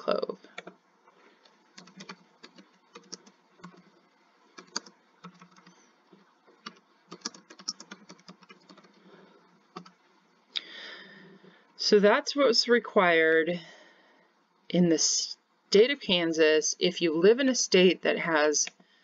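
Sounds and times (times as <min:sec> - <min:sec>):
computer keyboard typing: 0:00.5 - 0:00.8, 0:01.7 - 0:05.8, 0:06.6 - 0:09.0, 0:09.7 - 0:10.0.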